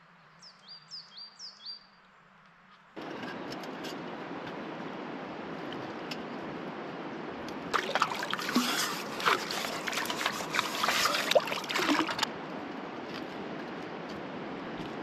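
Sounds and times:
rushing water: 0:04.6 - 0:12.6
water splashing: 0:07.7 - 0:12.3.

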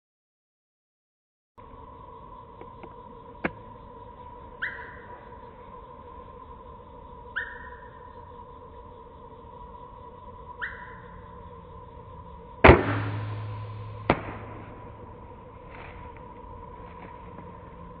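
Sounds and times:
low humming ring: 0:01.6 - 0:18.0.

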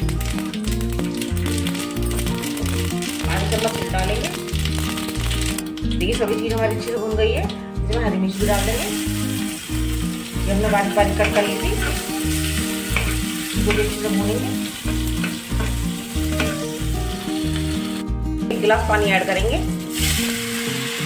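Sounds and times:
spices sizzling in hot oil: 0:00.0 - 0:21.0
ladle scraping pan: 0:10.7 - 0:16.8.

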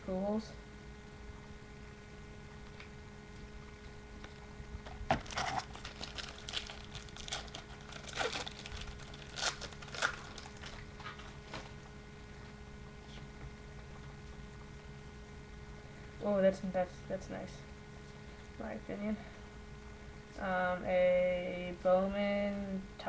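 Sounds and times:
foil wrapper crinkling and tearing: 0:05.1 - 0:11.9.

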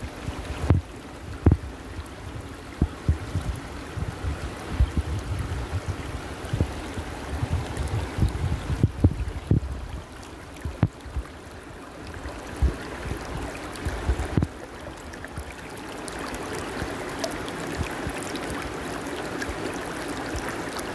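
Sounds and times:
stream running over stones: 0:00.0 - 0:20.9.

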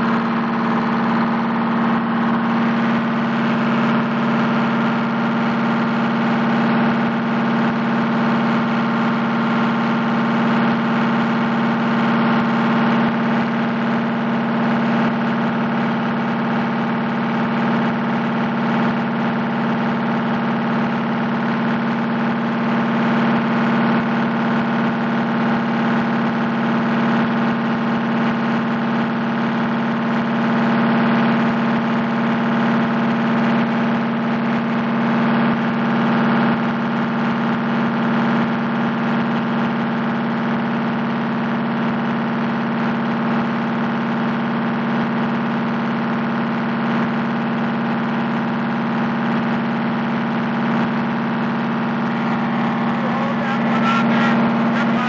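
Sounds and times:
diesel engine droning: 0:00.0 - 0:22.0, 0:51.8 - 0:55.0.

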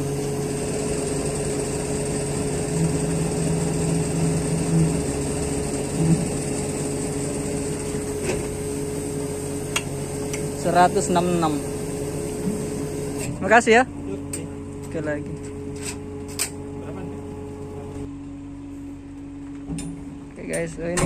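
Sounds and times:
heavy machinery engine humming: 0:00.0 - 0:21.0.

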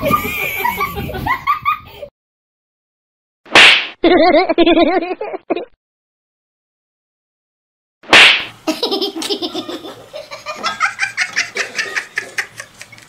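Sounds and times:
rapid pulsing laughter: 0:00.0 - 0:02.1, 0:08.7 - 0:13.0.

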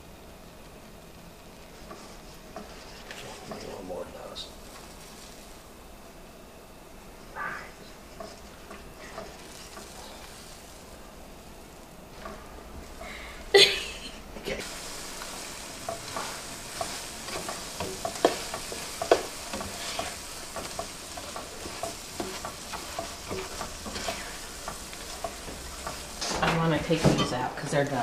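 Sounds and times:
eggs sizzling in frying pan: 0:00.0 - 0:28.0
spatula scraping pan: 0:01.7 - 0:03.8, 0:08.0 - 0:10.8, 0:14.6 - 0:27.7.

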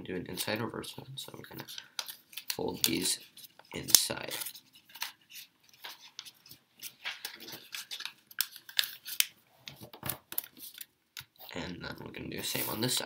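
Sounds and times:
paper being folded and creased: 0:01.4 - 0:11.5.

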